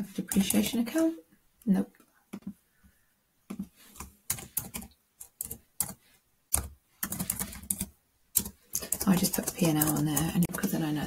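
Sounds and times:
keyboard typing: 0:03.5 - 0:11.0.

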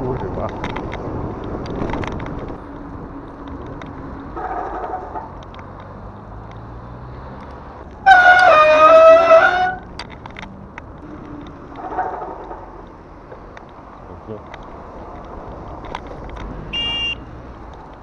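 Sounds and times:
wind noise: 0:00.0 - 0:05.9
bicycle tyre noise: 0:07.8 - 0:13.0.

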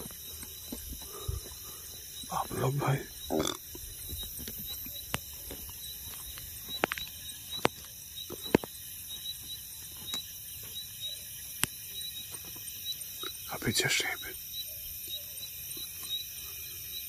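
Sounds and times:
footsteps on dry grassy path: 0:00.0 - 0:02.7, 0:03.7 - 0:10.9
insects chirping: 0:00.0 - 0:17.0.

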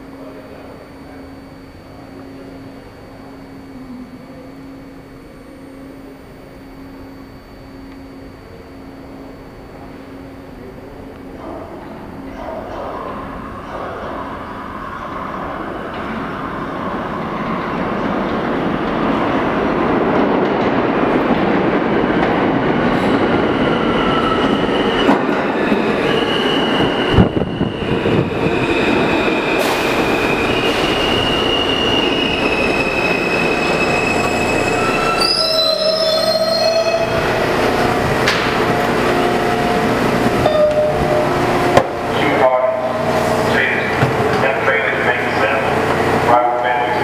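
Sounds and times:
subway train rumbling: 0:00.0 - 0:47.0
wheel and brake squeals: 0:30.3 - 0:37.2, 0:40.4 - 0:41.2.

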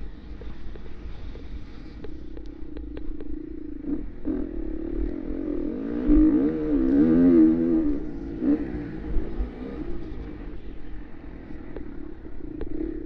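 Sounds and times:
dirt bike engine revving: 0:03.7 - 0:10.5.

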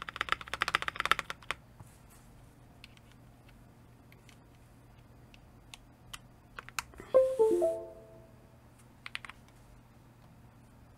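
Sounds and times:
descending electronic chime: 0:07.2 - 0:08.4.

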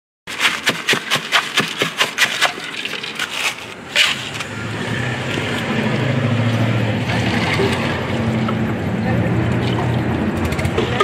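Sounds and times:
ice knocking in plastic bag: 0:00.3 - 0:04.3
low engine hum: 0:03.7 - 0:11.0.

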